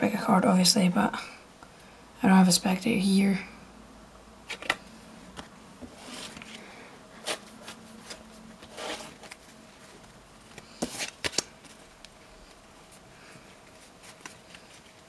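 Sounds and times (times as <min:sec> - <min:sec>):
playing cards sliding and swishing: 0:05.9 - 0:15.0.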